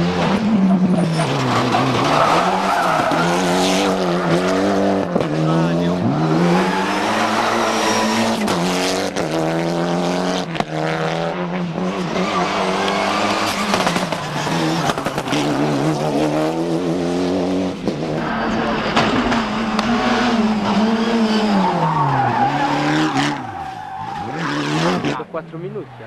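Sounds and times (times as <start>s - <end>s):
rally car engine at full throttle: 0.0s - 26.0s.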